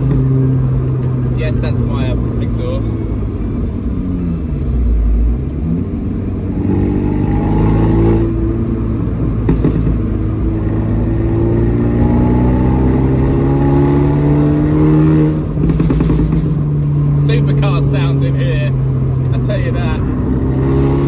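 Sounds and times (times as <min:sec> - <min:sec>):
car accelerating through gears: 0:04.2 - 0:21.0
exhaust crack: 0:07.9 - 0:11.2, 0:13.0 - 0:20.7.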